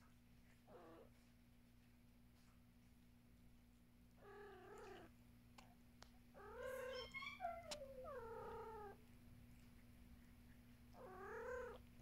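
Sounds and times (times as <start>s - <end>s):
cat meowing: 6.4s - 9.0s, 11.0s - 11.8s.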